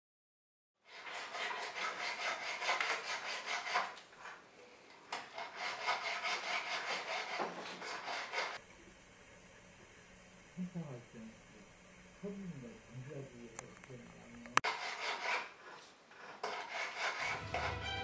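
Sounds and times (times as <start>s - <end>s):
hand tool rasping on metal: 0.9s - 4.0s, 5.2s - 8.6s, 14.6s - 18.0s.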